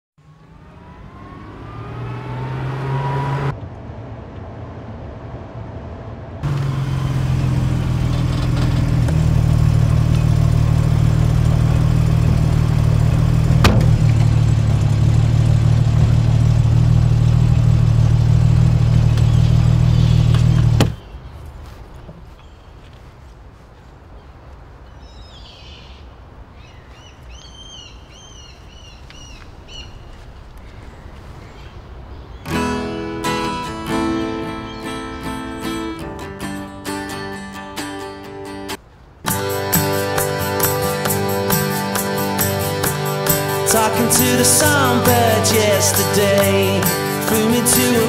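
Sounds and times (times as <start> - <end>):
car engine revving: 0.2 - 21.0, 39.3 - 48.0
sharp knock: 13.6 - 14.0.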